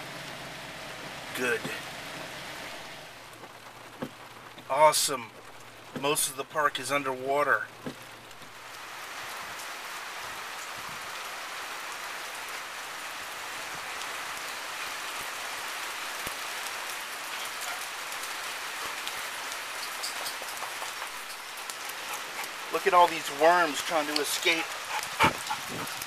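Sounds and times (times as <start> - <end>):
rain falling on grass and water: 0.0 - 26.0.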